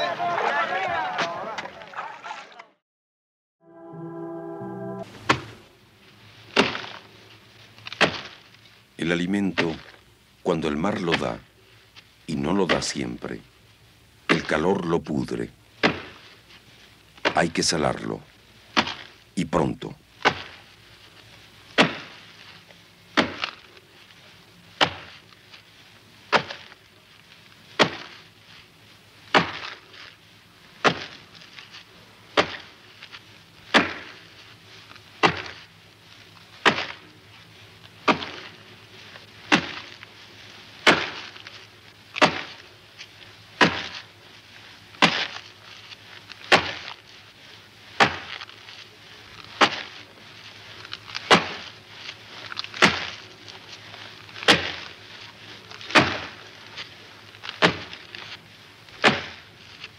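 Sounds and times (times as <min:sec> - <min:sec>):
sharp work thuds: 0:23.2 - 0:23.6, 0:33.7 - 0:34.1, 0:38.0 - 0:38.4, 0:39.5 - 0:39.9, 0:40.8 - 0:41.3, 0:42.2 - 0:42.6, 0:43.6 - 0:44.0, 0:48.0 - 0:48.4, 0:51.3 - 0:51.6, 0:55.9 - 0:56.4, 0:57.6 - 0:58.0, 0:59.0 - 0:59.4.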